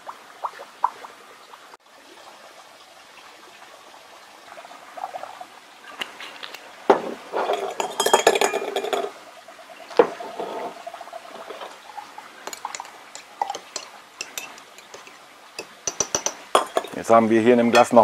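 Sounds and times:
liquid glugging and splashing: 4.5 - 17.0
glass knocking on glass: 6.9 - 9.1, 12.5 - 17.0, 17.7 - 18.0
glass clinks: 7.5 - 9.1, 12.5 - 17.0, 17.7 - 18.0.

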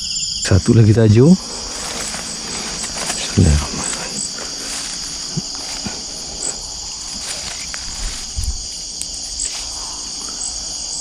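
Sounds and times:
crickets and insects chirring: 0.0 - 11.0.

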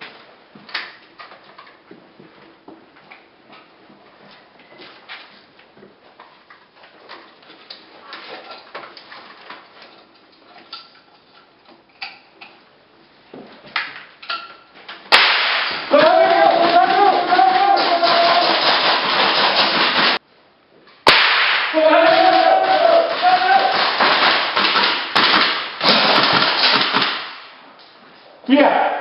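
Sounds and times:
sharp cracks: 15.1 - 20.2, 21.0 - 28.0
people shouting: 15.7 - 20.2, 21.6 - 24.9, 28.5 - 29.0.

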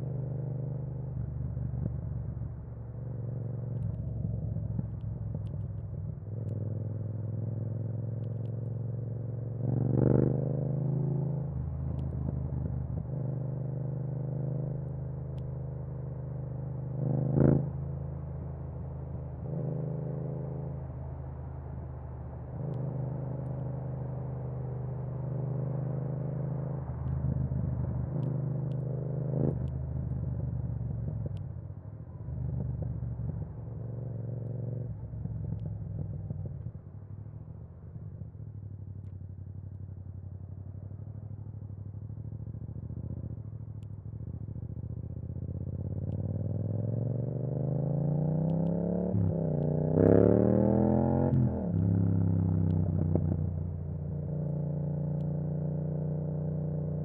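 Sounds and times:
motorcycle engine riding: 22.6 - 57.0.

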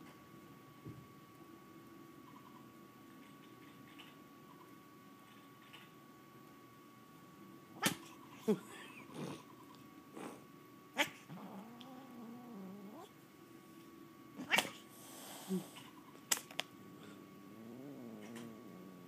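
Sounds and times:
cat growling: 11.0 - 13.2, 16.8 - 19.0.

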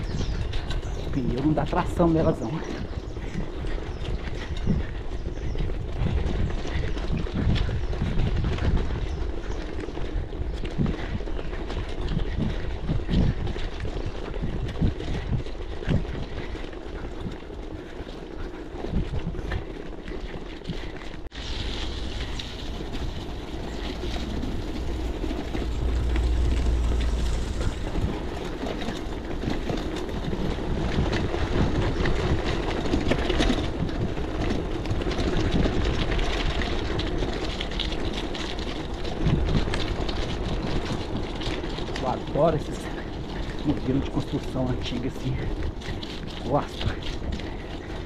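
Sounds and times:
bike rattling over stone paving: 18.8 - 48.0.

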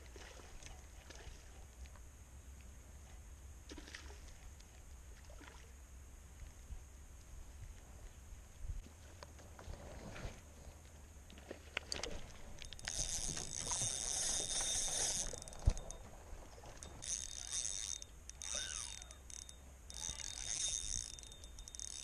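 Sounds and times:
fishing reel whirring: 12.5 - 16.2, 16.8 - 22.0.

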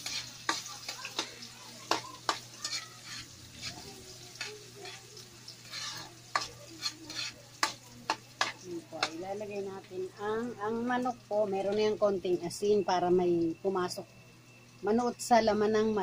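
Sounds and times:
spatula knocking and scraping pan: 0.0 - 9.3
garlic sizzling in oil: 0.0 - 16.0.

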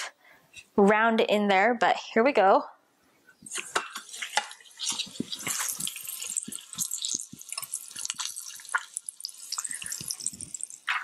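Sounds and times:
meat sizzling with crackling spatter: 3.4 - 11.0.

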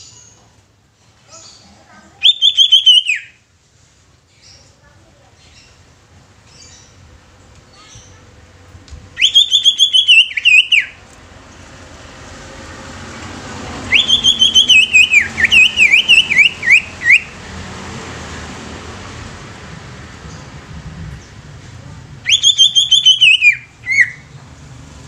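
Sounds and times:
bird singing loudly: 2.2 - 3.3, 9.2 - 11.0, 13.9 - 17.4, 22.3 - 24.3.

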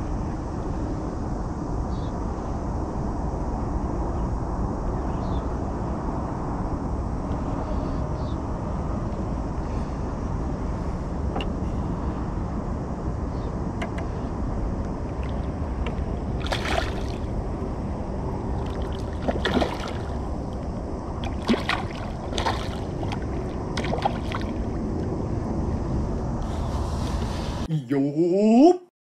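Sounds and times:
fish splashing at the surface: 16.4 - 17.4, 18.5 - 20.5, 21.2 - 24.8.

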